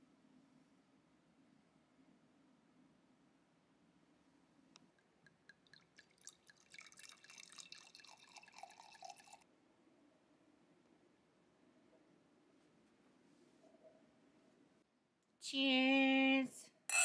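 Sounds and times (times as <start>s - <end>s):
liquid dripping and pouring: 4.8s - 9.5s.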